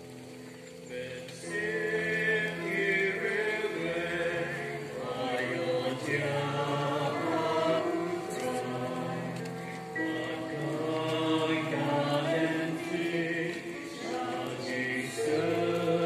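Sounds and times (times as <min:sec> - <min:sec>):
voices singing a hymn: 0:00.8 - 0:16.0.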